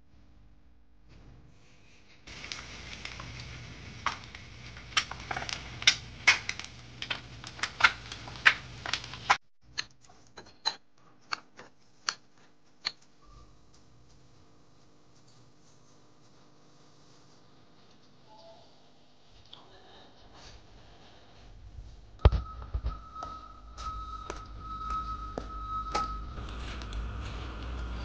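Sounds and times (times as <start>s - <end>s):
eggs sizzling in oil: 2.3s - 9.4s.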